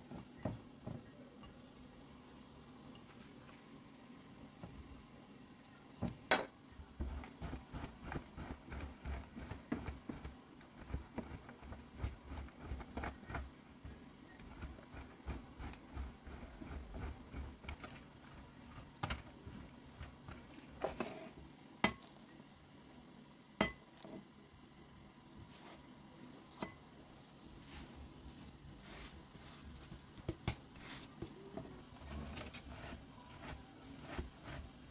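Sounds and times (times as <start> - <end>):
cheese scraping on metal grater: 7.0 - 13.5, 14.4 - 19.2, 31.9 - 34.9.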